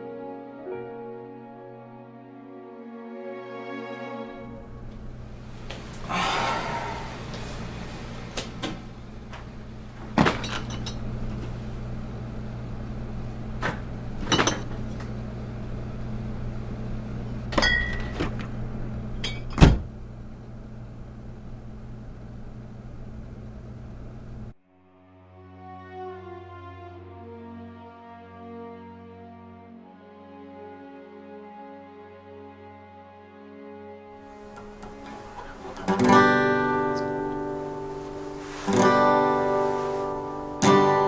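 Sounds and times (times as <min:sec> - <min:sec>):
refrigerator humming: 0:04.4 - 0:24.5
refrigerator door clicks and knocks: 0:19.5 - 0:19.9.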